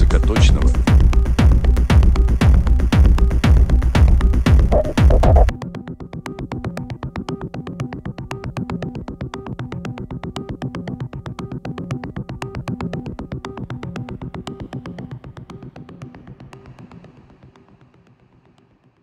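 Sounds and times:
fast clicking percussion: 4.6 - 5.5
sequenced synthesizer pattern: 4.6 - 5.5.

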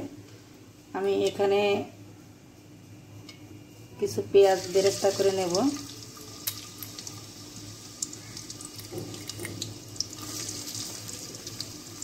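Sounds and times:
onions sizzling in hot oil: 4.4 - 12.0.

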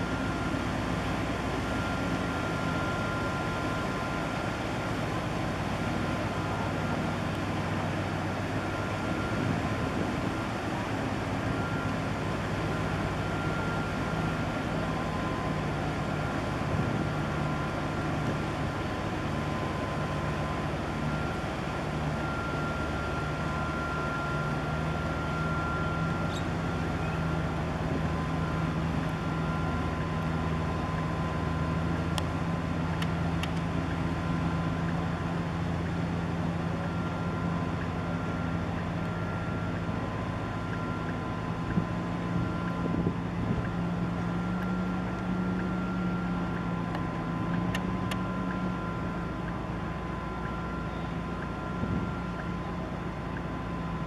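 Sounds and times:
ship engine drone: 0.0 - 54.0.

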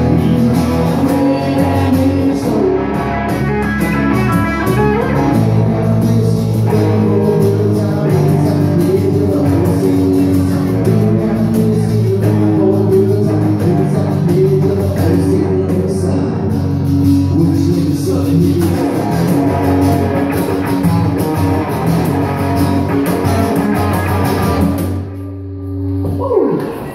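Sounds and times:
person singing: 0.0 - 16.6
live rock band playing: 0.0 - 26.9.

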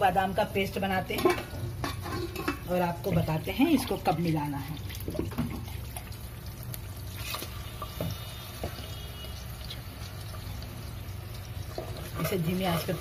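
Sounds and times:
pulp poured into a pot: 3.5 - 13.0.

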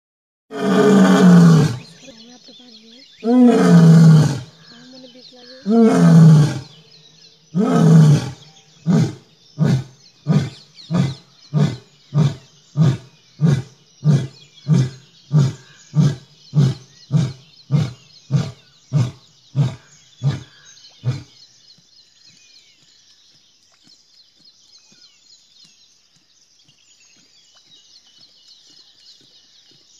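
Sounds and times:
lion roaring: 0.5 - 1.9, 3.2 - 4.5, 5.6 - 6.8, 7.5 - 21.4.

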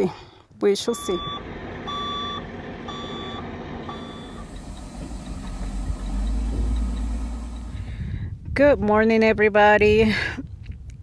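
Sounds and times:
vehicle reversing alarm beeping: 0.8 - 8.0
low rumble: 1.1 - 9.0.

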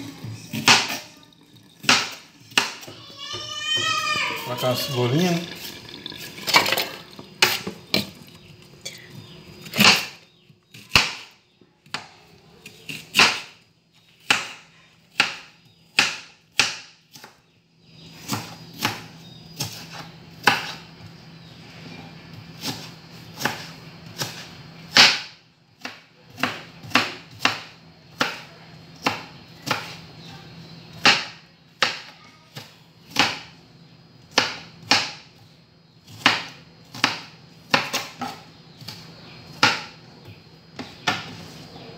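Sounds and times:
knife chopping on plastic board: 1.8 - 4.1, 9.6 - 17.4, 18.2 - 20.8, 22.6 - 30.0, 31.0 - 33.5, 34.3 - 35.3, 36.1 - 40.0, 40.7 - 41.6.

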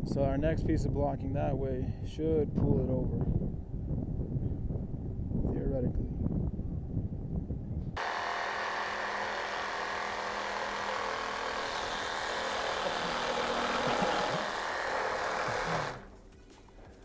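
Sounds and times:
reciprocating saw cutting wood: 8.0 - 16.1.

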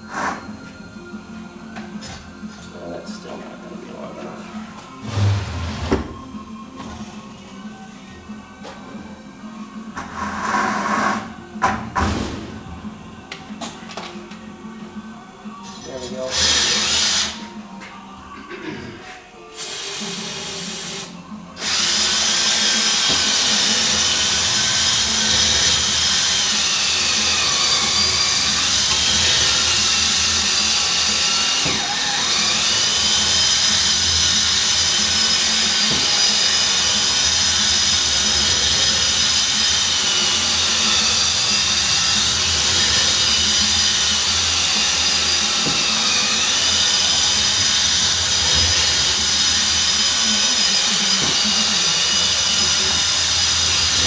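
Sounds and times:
power drill motor whine: 16.3 - 17.4, 19.7 - 54.0.

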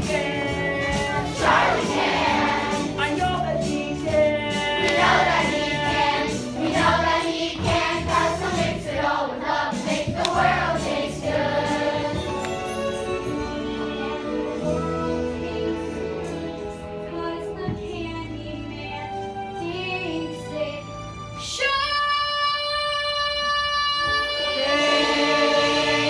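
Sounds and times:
young performers singing in chorus: 0.0 - 2.9, 4.5 - 12.7, 24.0 - 26.0
instrumental accompaniment with bass: 0.0 - 23.2.

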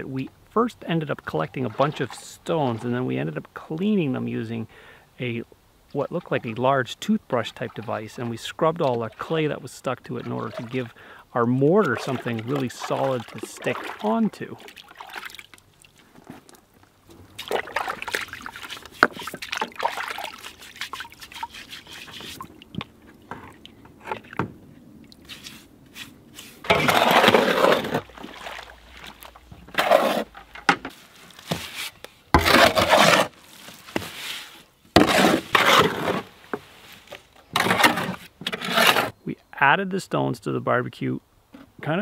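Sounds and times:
water sloshing in a bucket: 1.1 - 3.2, 6.0 - 39.2
water poured from a bucket: 11.8 - 16.6, 17.3 - 22.8, 26.6 - 30.3
shovel scraping through mortar: 20.3 - 22.5, 25.3 - 28.1, 29.7 - 30.4, 31.4 - 36.3, 37.5 - 39.2.

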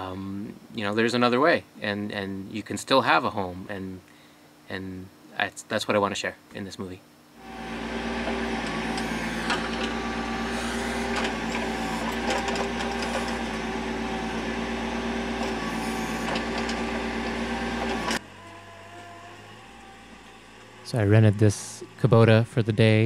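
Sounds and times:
diesel engine running: 7.4 - 23.0.

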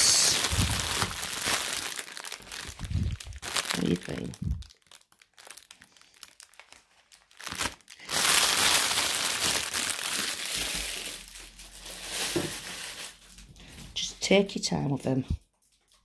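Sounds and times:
plastic bag crinkling: 0.0 - 14.2.

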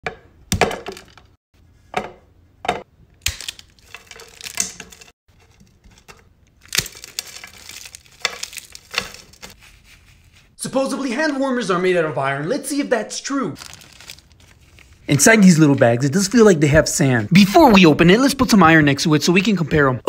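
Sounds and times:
dried slime crackling and crunching: 6.5 - 9.6, 13.6 - 15.0.

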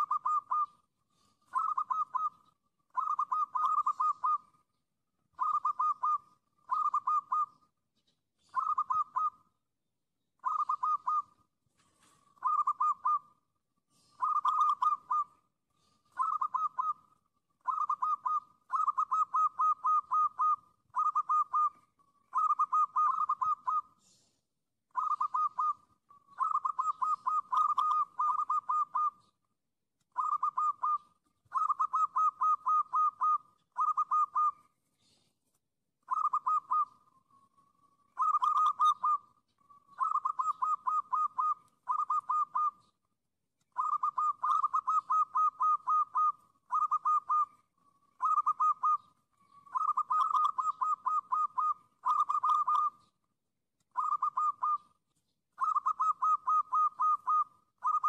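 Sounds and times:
dove cooing: 0.0 - 9.6, 10.4 - 24.2, 24.9 - 29.4, 30.1 - 35.2, 36.0 - 43.0, 43.7 - 53.2, 53.9 - 55.0, 55.6 - 58.0.

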